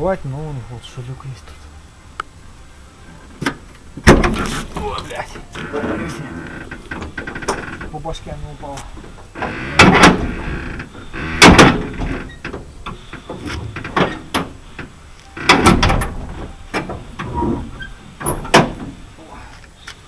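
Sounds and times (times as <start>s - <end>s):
sheet metal clanks and thuds: 3.4s - 4.9s, 9.0s - 14.6s, 15.5s - 19.0s.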